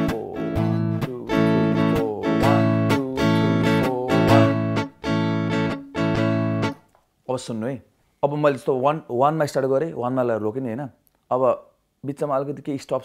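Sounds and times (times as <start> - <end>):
electric guitar strumming chords: 0.0 - 6.8.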